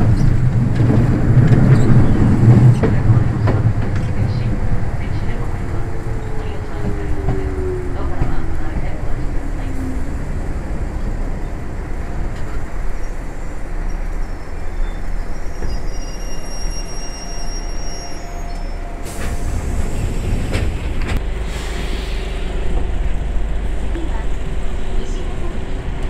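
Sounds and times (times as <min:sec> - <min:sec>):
train wheels rumbling on rail: 0:00.0 - 0:26.0
thin high squeal: 0:15.4 - 0:18.8.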